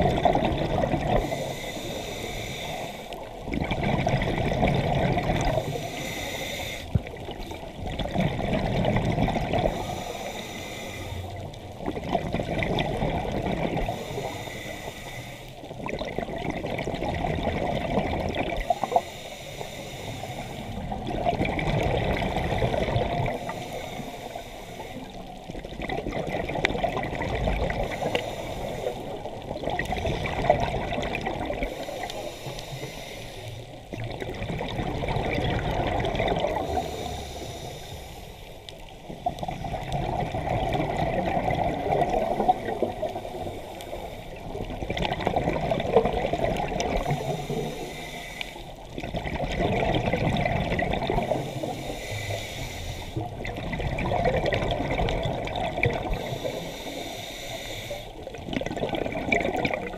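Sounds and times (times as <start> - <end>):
exhaled air bubbling underwater: 0.0 - 59.9
regulator inhalation hiss: 1.2 - 3.3, 5.6 - 6.9, 9.7 - 11.4, 13.9 - 15.6, 18.7 - 20.8, 23.4 - 25.2, 27.8 - 29.3, 31.7 - 33.7, 36.6 - 38.6, 47.0 - 48.8, 51.3 - 53.3, 56.1 - 58.2.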